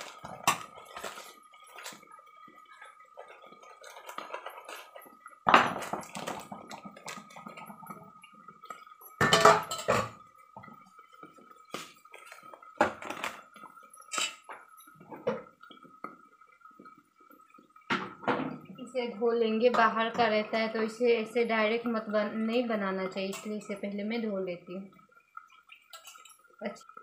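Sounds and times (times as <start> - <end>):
steel pots and utensils clinking: 0.0 - 2.1, 2.7 - 8.0, 8.7 - 10.2, 12.4 - 15.5, 23.0 - 24.2, 25.8 - 26.7.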